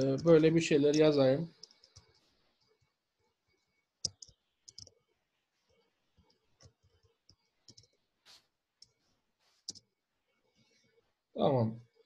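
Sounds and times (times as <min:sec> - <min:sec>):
mouse and keyboard clicks: 0:04.0 - 0:05.0.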